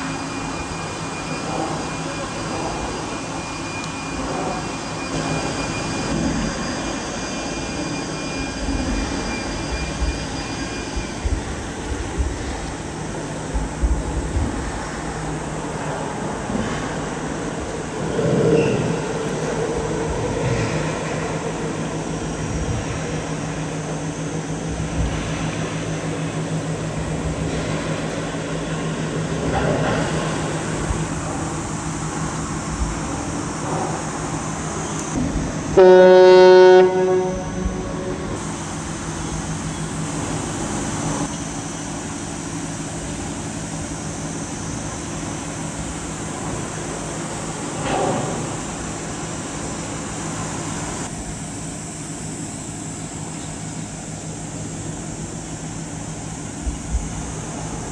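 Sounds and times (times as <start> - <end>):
ship engine drone: 0.0 - 57.9
ship whistle blast: 35.8 - 38.4.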